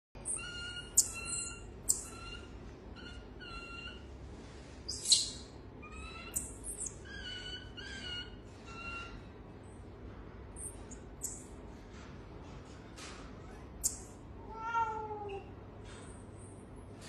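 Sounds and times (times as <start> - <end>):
marmosets chirping: 0.2 - 4.1, 4.9 - 9.3, 10.5 - 11.6, 13.8 - 14.2
sharp squeaks: 0.2 - 4.1, 4.9 - 9.3, 10.6 - 11.5, 13.2 - 14.2.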